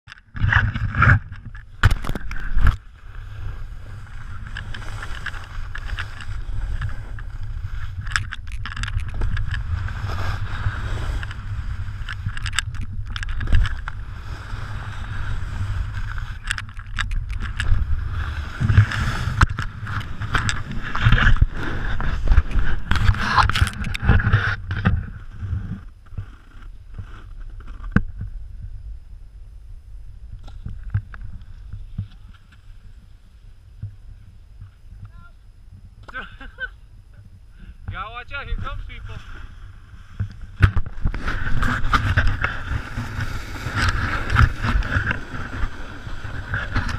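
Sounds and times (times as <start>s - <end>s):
snowboard scraping over snow: 0.4s - 16.5s, 17.1s - 28.2s, 38.5s - 46.9s.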